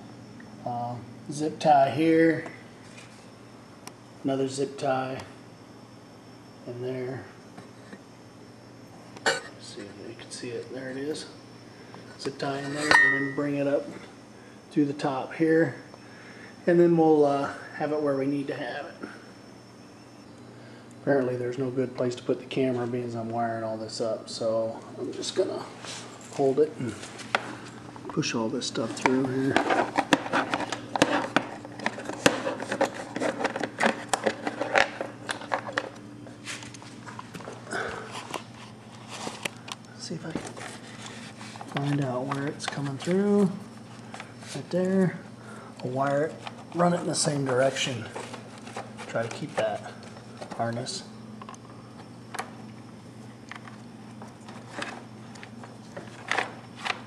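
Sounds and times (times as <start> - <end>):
faint steady hum: 0.0 - 57.0
rustles and clicks of wire handling: 25.4 - 45.0, 45.8 - 52.8, 53.4 - 57.0.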